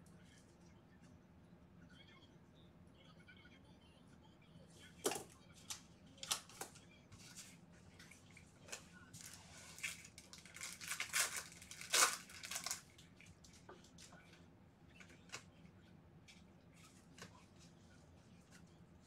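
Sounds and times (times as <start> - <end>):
trading cards being handled: 5.0 - 15.5
foil wrapper crinkling and tearing: 9.2 - 13.0.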